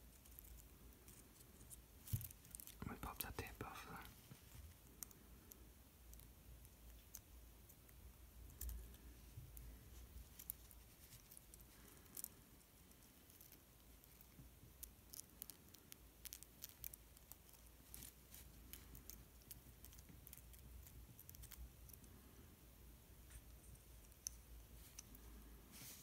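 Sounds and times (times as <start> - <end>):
small clicks and ticks: 4.4 - 22.4, 23.2 - 25.6.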